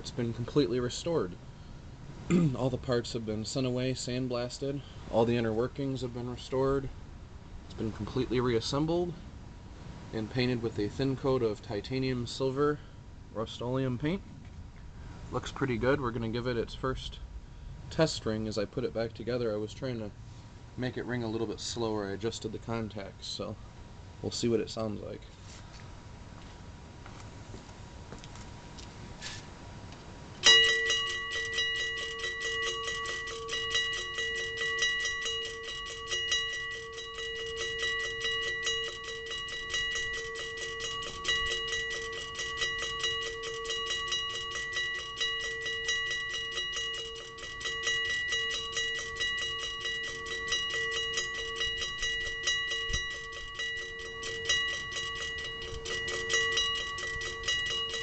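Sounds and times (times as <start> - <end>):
railroad crossing bell ringing: 30.4 - 58.0.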